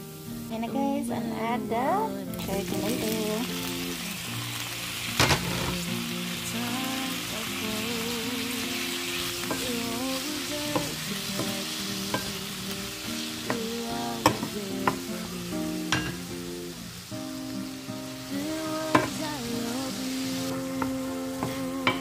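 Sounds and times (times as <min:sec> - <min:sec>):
tomatoes sizzling in oil: 0:00.0 - 0:22.0
wooden spoon knocking on pan: 0:10.7 - 0:12.4, 0:15.9 - 0:16.2.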